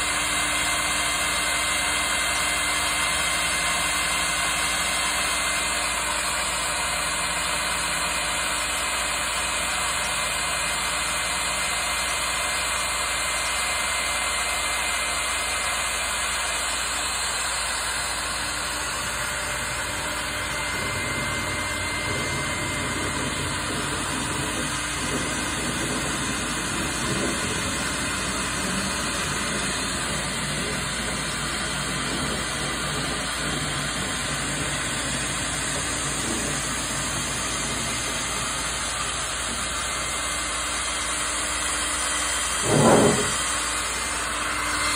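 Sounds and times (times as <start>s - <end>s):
router machine drone: 0.0s - 44.9s
faint high whine: 18.2s - 40.1s.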